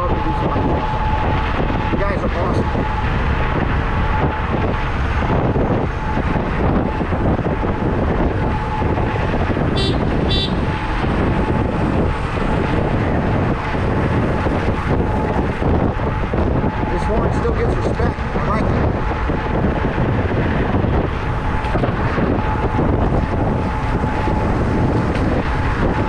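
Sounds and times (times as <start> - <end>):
road and traffic rumble: 0.0 - 26.0
wind rushing over microphone: 0.0 - 26.0.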